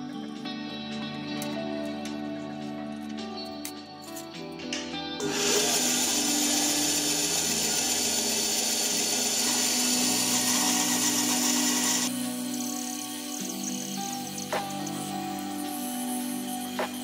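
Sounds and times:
band saw cutting wood: 5.2s - 17.0s.

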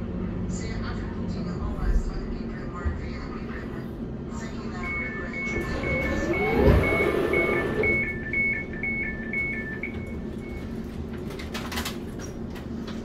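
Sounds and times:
train whine: 3.4s - 11.0s
train door warning beeps: 4.7s - 10.8s.

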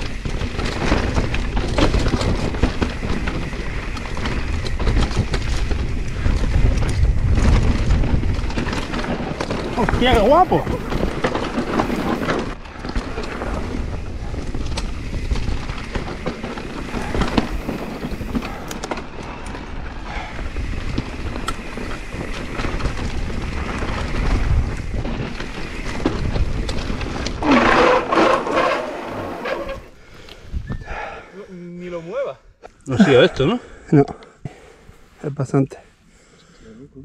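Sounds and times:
wind buffeting microphone: 0.0s - 28.2s, 28.9s - 31.2s
bike tyres rattling over stones: 0.0s - 30.7s.

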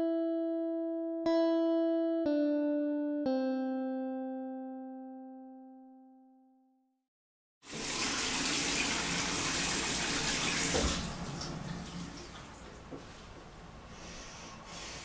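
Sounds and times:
tap running into sink: 7.7s - 13.1s.

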